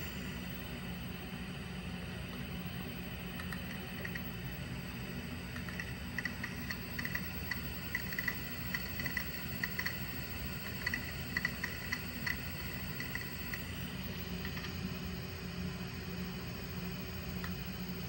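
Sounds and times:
hard drive motor hum: 0:00.0 - 0:18.0
hard drive head ticking: 0:03.2 - 0:15.2, 0:16.8 - 0:18.0.

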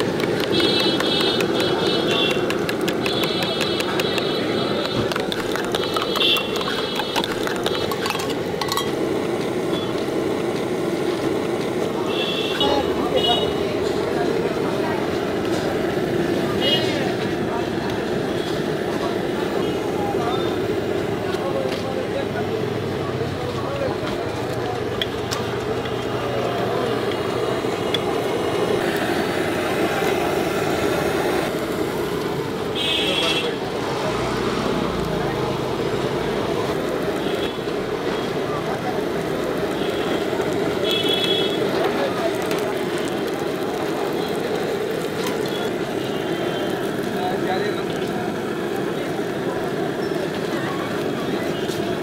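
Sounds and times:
gas burner roaring: 0:00.0 - 0:52.0
street noise: 0:00.0 - 0:52.0
steel cup and utensils clinking: 0:05.0 - 0:09.0.

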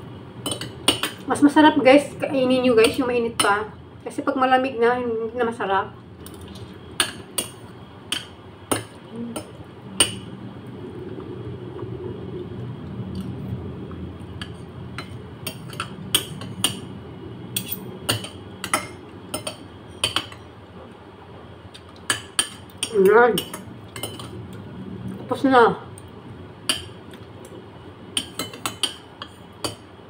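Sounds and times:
cutlery clinking on a plate: 0:17.6 - 0:18.8.

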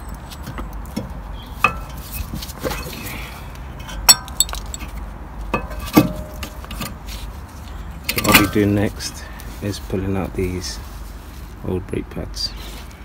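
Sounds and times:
metallic clinks of brake parts: 0:03.8 - 0:06.9.

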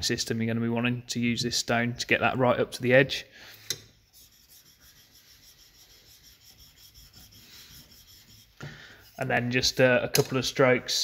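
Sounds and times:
chisel scraping on sharpening stone: 0:03.7 - 0:09.3.

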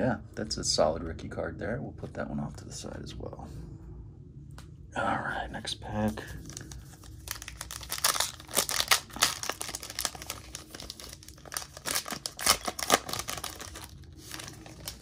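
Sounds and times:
foil wrapper crinkling: 0:06.4 - 0:15.0.

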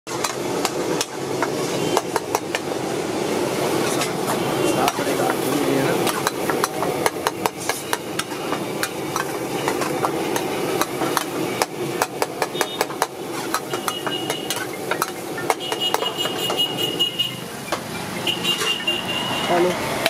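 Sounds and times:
steel ladle scraping metal pot: 0:07.2 - 0:11.4, 0:12.5 - 0:17.4.

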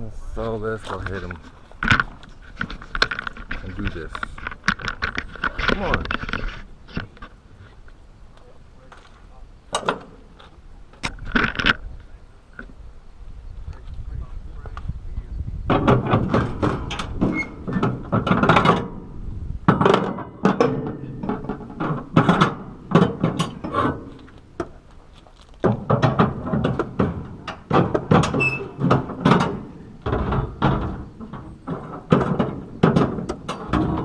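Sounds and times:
metal clanks: 0:15.7 - 0:34.0.

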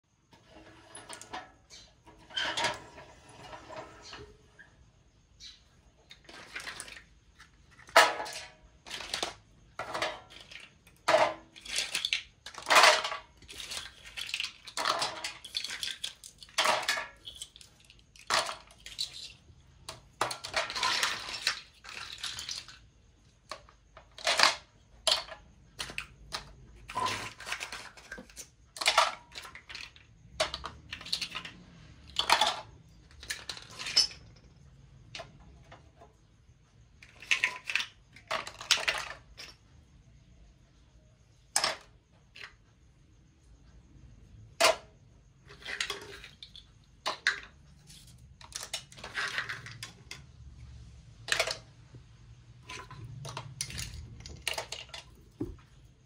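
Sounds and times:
plastic toys clattering on wood: 0:00.3 - 0:04.7, 0:05.3 - 0:39.9, 0:41.0 - 0:42.8, 0:44.3 - 0:56.0.

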